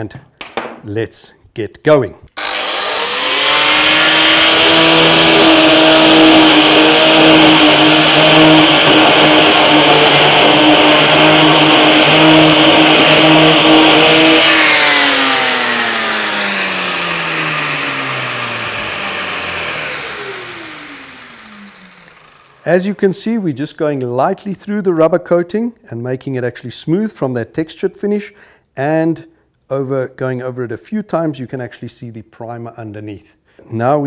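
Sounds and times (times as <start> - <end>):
paint remover tool running: 2.4 - 22.9
dust extractor vacuum: 2.4 - 23.5.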